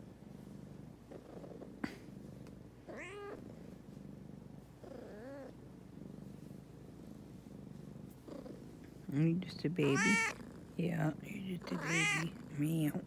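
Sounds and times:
cat purring: 0:00.0 - 0:13.0
cat meowing: 0:02.9 - 0:03.4, 0:09.8 - 0:10.4, 0:11.7 - 0:12.3.

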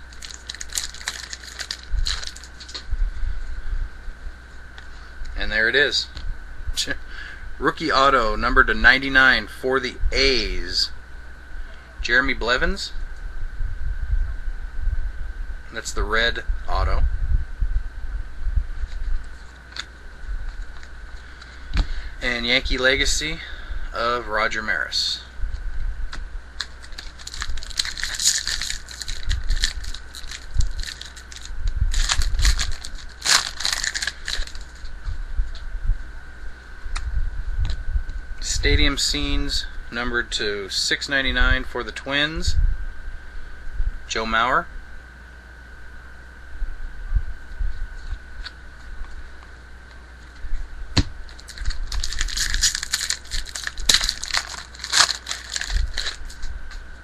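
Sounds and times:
cards being handled: 0:00.0 - 0:02.9, 0:26.6 - 0:34.9, 0:51.3 - 0:56.5
foil wrapper crinkling: 0:00.0 - 0:02.9, 0:26.6 - 0:34.9, 0:51.2 - 0:56.8.

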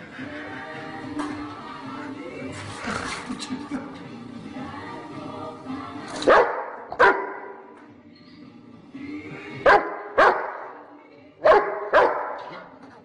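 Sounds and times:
dog barking: 0:06.2 - 0:07.6, 0:09.6 - 0:10.8, 0:11.4 - 0:12.7.

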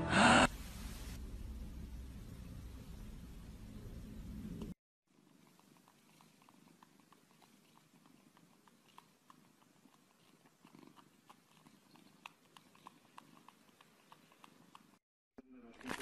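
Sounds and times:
cat purring: 0:00.7 - 0:15.0
soft sucking clicks: 0:05.4 - 0:15.0.

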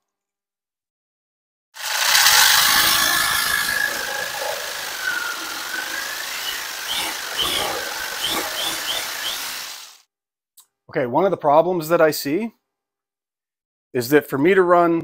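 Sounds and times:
jigsaw cutting wood: 0:01.8 - 0:10.0.

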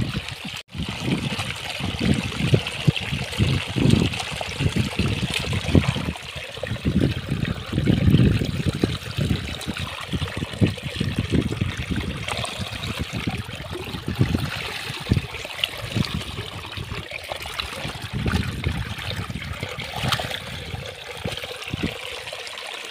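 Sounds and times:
muddy water trickling: 0:00.0 - 0:22.9
hands splashing in water: 0:17.4 - 0:20.6.

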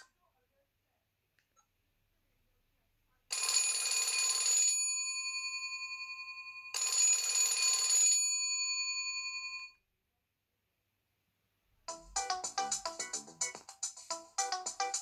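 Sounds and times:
phone bell ringtone: 0:03.3 - 0:09.8.

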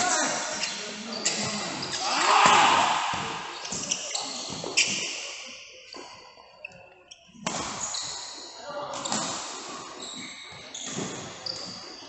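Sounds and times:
rackets hitting shuttlecock: 0:07.4 - 0:07.8.

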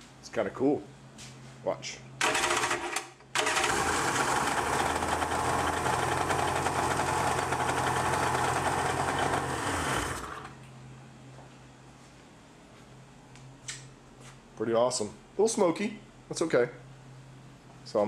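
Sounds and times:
jet ski engine running: 0:03.4 - 0:10.4.

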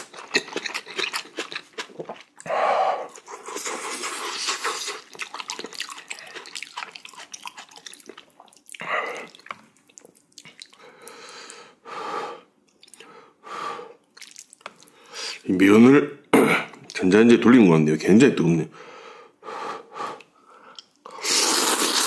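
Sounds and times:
wet chewing and slurping noodles: 0:00.0 - 0:02.5, 0:03.1 - 0:11.2, 0:20.8 - 0:22.0.

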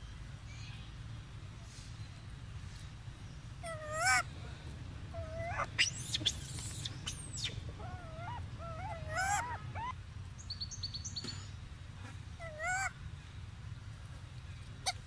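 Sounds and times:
monkey coo calls: 0:03.6 - 0:04.3, 0:05.1 - 0:10.0, 0:12.4 - 0:12.9.

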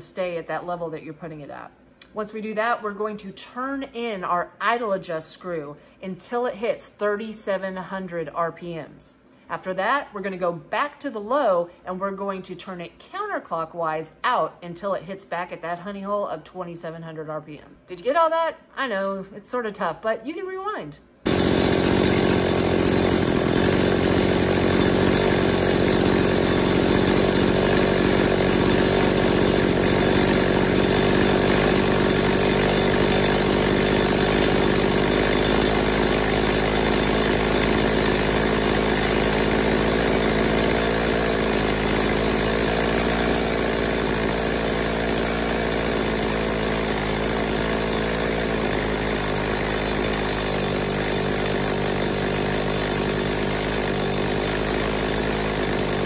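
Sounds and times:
chainsaw engine idling: 0:21.3 - 0:56.0.

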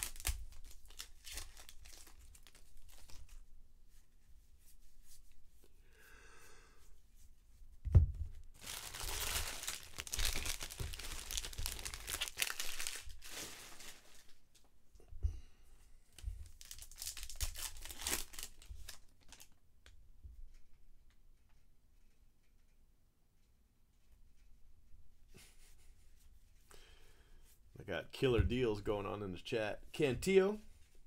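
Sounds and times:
wrapper tearing and crinkling: 0:00.0 - 0:03.4, 0:08.6 - 0:14.4, 0:16.4 - 0:19.6.

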